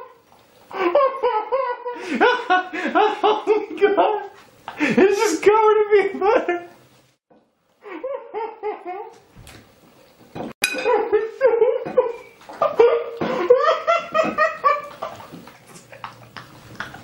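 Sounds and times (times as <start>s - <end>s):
loud human laughter: 0.7s - 5.2s, 7.8s - 9.2s, 10.8s - 15.3s.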